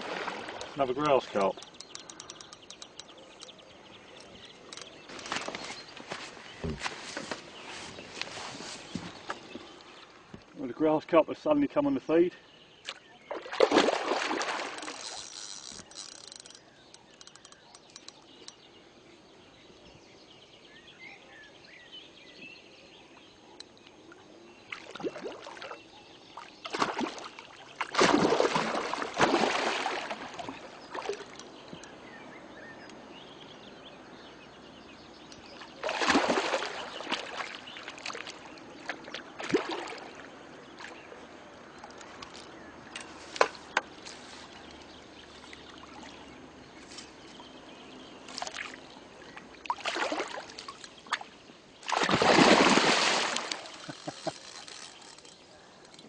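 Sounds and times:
fish splashing and thrashing: 0.0 - 3.6, 4.2 - 10.2, 12.9 - 18.2, 26.6 - 31.6, 35.5 - 41.0, 49.6 - 55.5.

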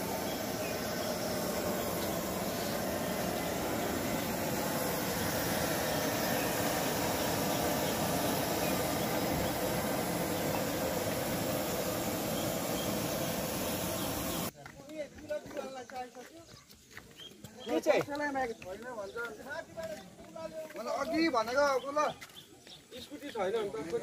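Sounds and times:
gas burners roaring: 0.0 - 14.5.

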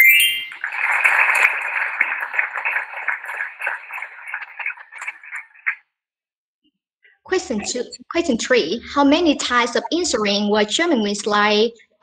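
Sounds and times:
short rising chime: 0.0 - 0.8
recorded applause: 0.0 - 5.9.

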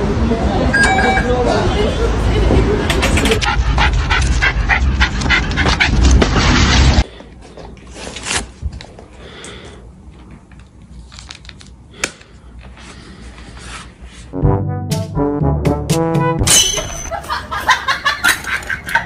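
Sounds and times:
dog panting: 3.1 - 6.6.

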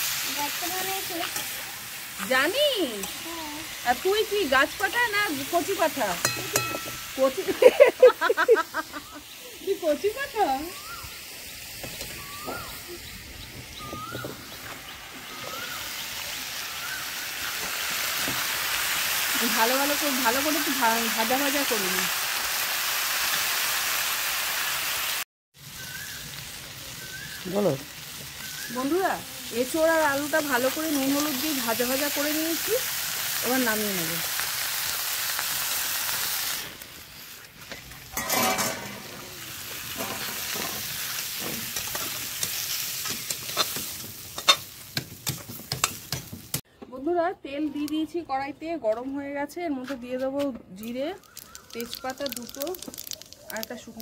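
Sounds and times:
food sizzling in oil: 0.0 - 46.6, 50.8 - 54.0
metal spatula scraping a wok: 37.7 - 46.6.

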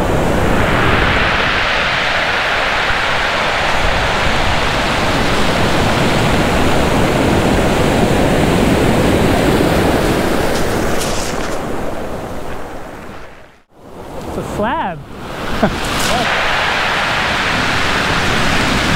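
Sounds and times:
surf breaking on pebbly beach: 0.0 - 13.4, 15.2 - 18.9.

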